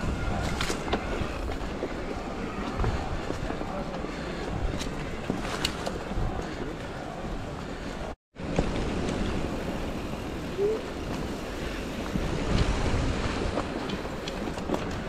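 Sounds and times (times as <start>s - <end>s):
bike tyres rolling on dirt: 0.0s - 15.0s
wind buffeting microphone: 0.0s - 15.0s.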